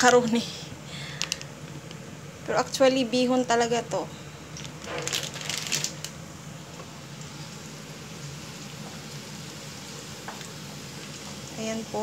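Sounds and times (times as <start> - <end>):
plastic bag crinkling: 4.6 - 6.2
onion sizzling in a pan: 4.9 - 12.0.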